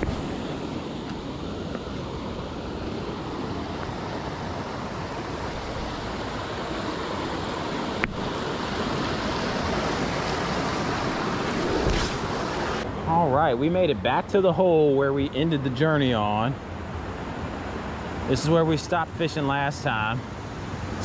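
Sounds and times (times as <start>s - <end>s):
river rapids rushing: 0.0s - 12.8s.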